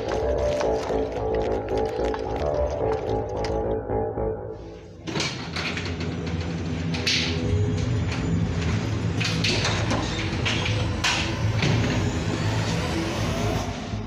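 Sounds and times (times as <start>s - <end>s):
low rumbling drone: 0.0s - 5.1s.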